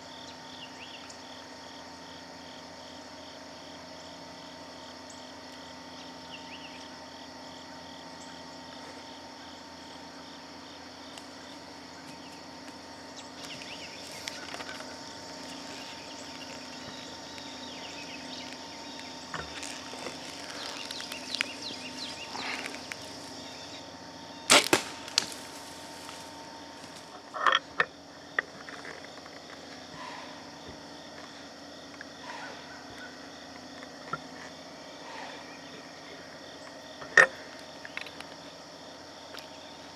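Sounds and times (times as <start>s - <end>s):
bow string releasing crack: 24.5s - 26.3s.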